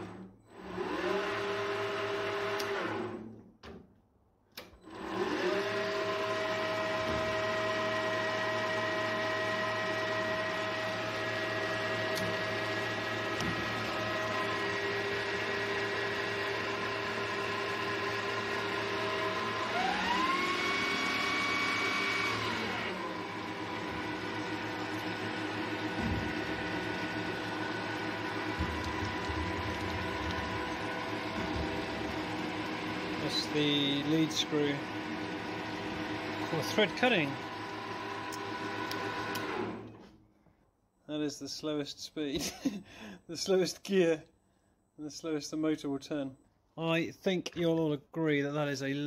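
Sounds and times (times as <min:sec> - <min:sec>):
lathe motor whining: 0:00.0 - 0:03.3, 0:04.8 - 0:40.0.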